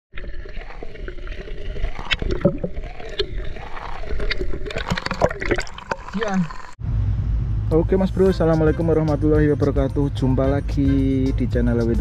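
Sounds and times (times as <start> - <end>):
water sloshing and splashing: 0.1 - 6.8.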